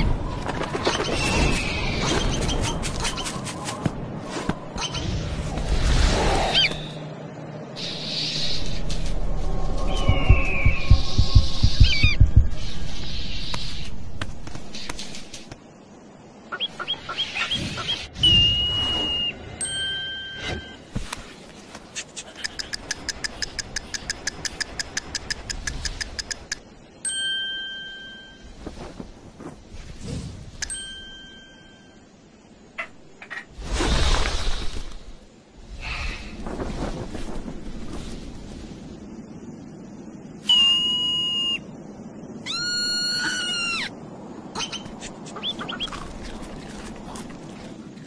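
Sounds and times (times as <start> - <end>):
marmot whistling screams: 42.4 - 43.9.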